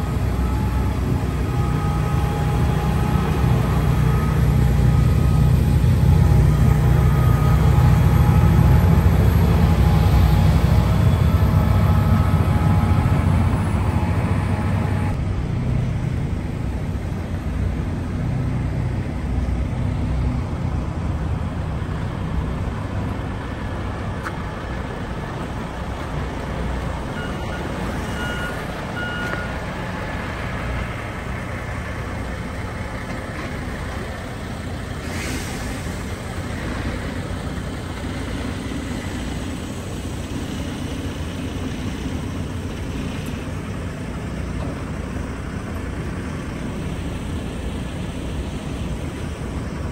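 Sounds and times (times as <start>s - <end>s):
diesel engines rumbling: 0.0s - 49.9s
short beeps: 27.1s - 29.6s.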